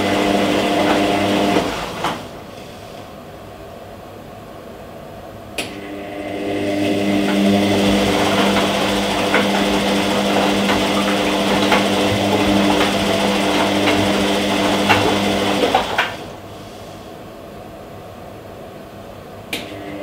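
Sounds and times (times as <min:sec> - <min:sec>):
washing machine motor hum: 0:00.0 - 0:03.9, 0:05.4 - 0:20.0.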